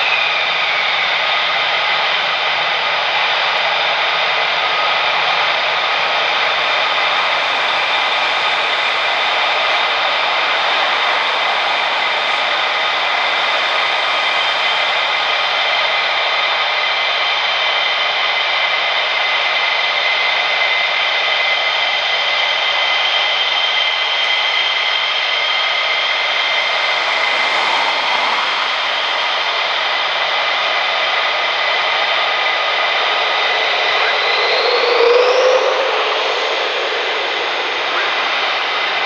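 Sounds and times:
jet engines whining: 0.0s - 39.0s.

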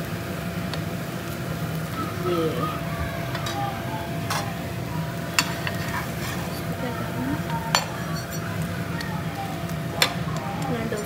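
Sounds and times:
food sizzling in pan: 0.0s - 11.0s
spatula scraping and tapping pan: 5.3s - 6.8s, 7.4s - 9.1s.

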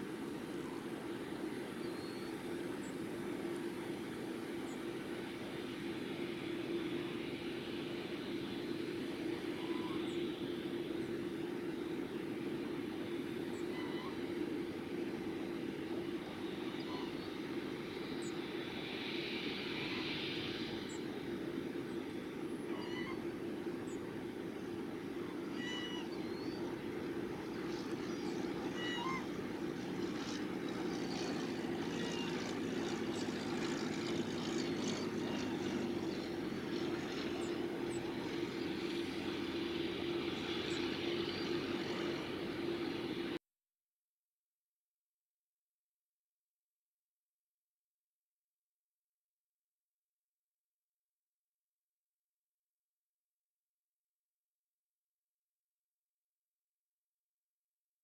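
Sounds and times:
jet aircraft drone: 0.0s - 43.4s
faint bird chirps: 22.7s - 23.2s, 25.3s - 26.8s, 27.4s - 29.5s.

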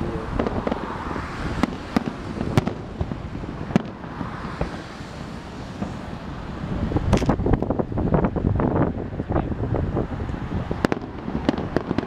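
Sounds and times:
continuous rumble: 0.0s - 12.0s
firework shells bursting: 0.4s - 7.8s, 10.8s - 12.0s.

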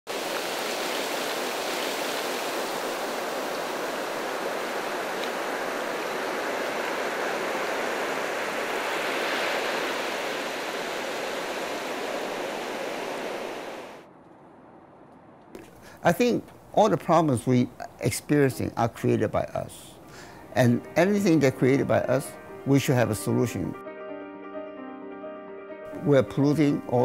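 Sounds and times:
surf washing over sand: 0.1s - 14.1s.

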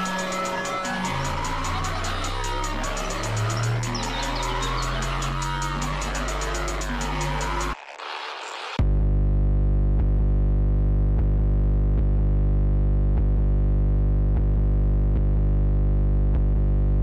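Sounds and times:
heavy steady bass: 0.0s - 7.8s, 8.8s - 17.0s
sustained synthesizer chord: 0.0s - 7.8s.

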